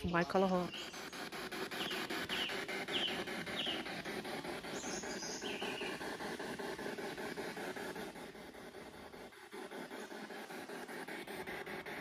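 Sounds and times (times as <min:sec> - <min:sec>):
bird chirping: 0:00.0 - 0:06.2.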